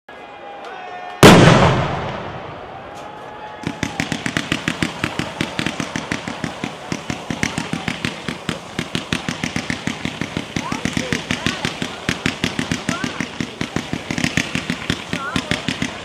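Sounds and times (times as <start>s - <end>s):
fireworks rapid sharp shots: 1.2s - 2.5s, 3.6s - 16.0s
loud boom echoing away: 1.2s - 3.0s.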